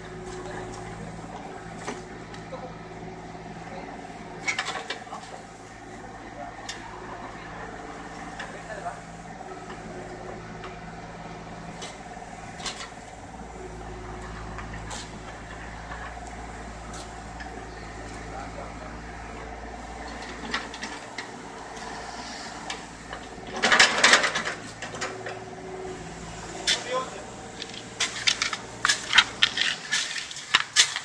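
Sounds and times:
excavator engine running: 0:00.0 - 0:31.0
loud scraping and clattering: 0:19.7 - 0:31.0.

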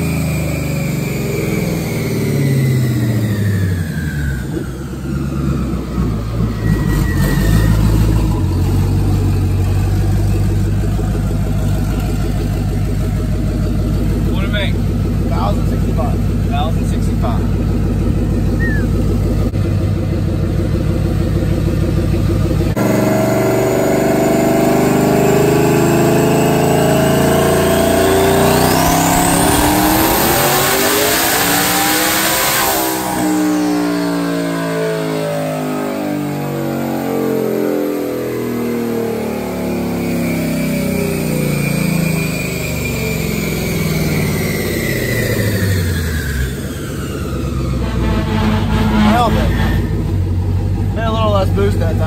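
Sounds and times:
car engine revving: 0:00.0 - 0:52.0
dyno rollers winding down: 0:26.4 - 0:33.8.

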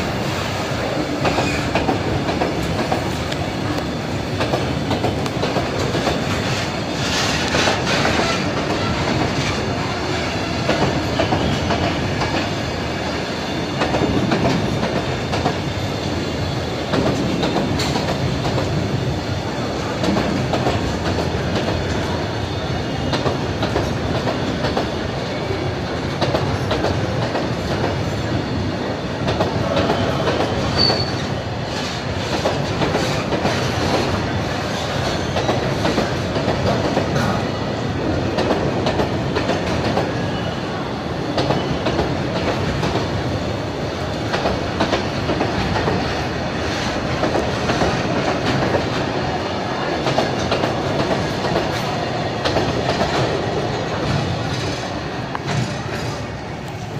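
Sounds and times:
train wheels rumbling on rails: 0:00.0 - 0:56.9
clickety-clack over rail joints: 0:00.1 - 0:28.3, 0:29.2 - 0:40.5, 0:41.3 - 0:56.9
high squeak: 0:30.8 - 0:31.3.

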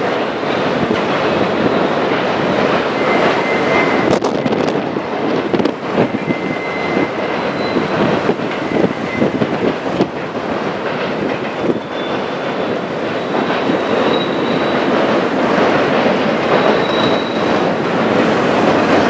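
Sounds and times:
freight train rumbling past: 0:00.0 - 0:19.0
wheels clicking and knocking: 0:00.0 - 0:19.0
high wheel squeal: 0:01.5 - 0:04.7, 0:05.4 - 0:09.6, 0:11.6 - 0:15.2, 0:16.4 - 0:17.8.

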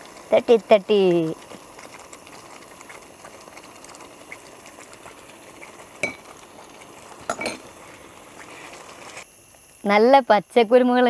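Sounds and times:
faint steady simmer: 0:00.0 - 0:11.0.

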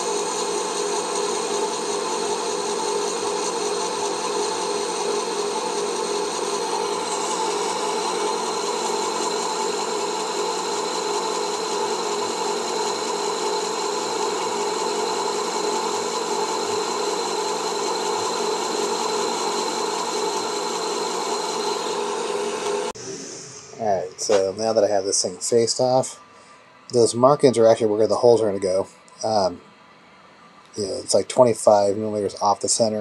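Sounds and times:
cutting tool shaving metal: 0:00.0 - 0:23.0
lathe spindle whine: 0:00.0 - 0:33.0.

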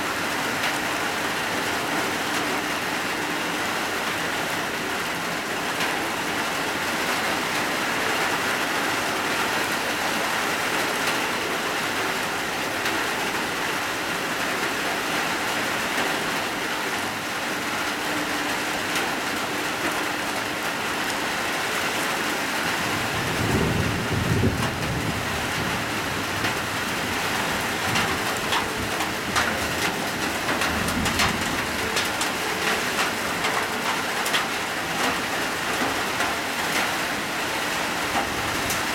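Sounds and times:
heavy rain on hard surfaces: 0:00.0 - 0:38.9
sharp raindrop taps: 0:27.8 - 0:37.0.

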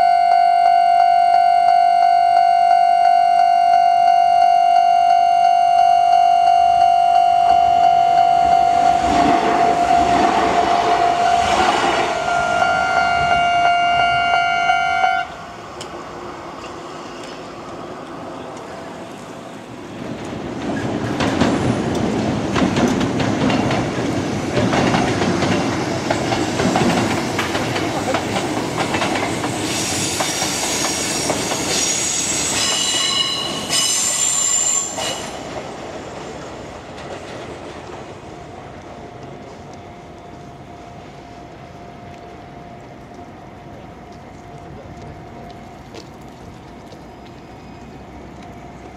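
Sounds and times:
crossing alarm ringing: 0:00.0 - 0:15.4
electric train passing: 0:05.5 - 0:45.8
train wheel squeal: 0:07.5 - 0:14.4, 0:29.2 - 0:35.7
train wheels clacking over joints: 0:20.0 - 0:38.2.

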